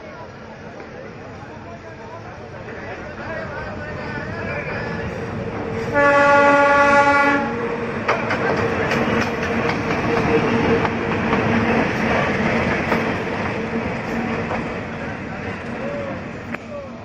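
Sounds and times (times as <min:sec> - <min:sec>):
locomotive horn blast: 0:05.9 - 0:07.6
wheels clattering over rail joints: 0:08.0 - 0:14.7.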